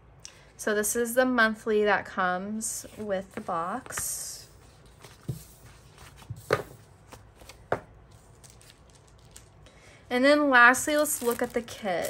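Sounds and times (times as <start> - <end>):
paper sheets handled: 2.8 - 9.6, 10.7 - 12.0.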